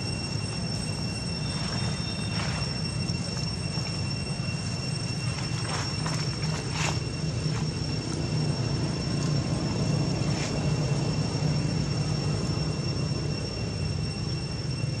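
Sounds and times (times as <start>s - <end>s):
high steady whine: 0.0s - 15.0s
low mechanical rumble: 0.0s - 15.0s.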